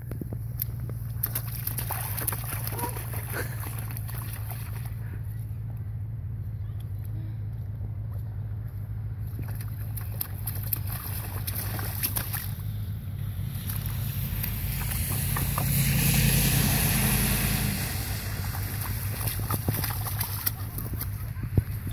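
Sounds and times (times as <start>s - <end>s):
boots splashing through slushy puddle: 0.6s - 5.1s, 9.2s - 21.9s
low rumble: 2.8s - 21.9s.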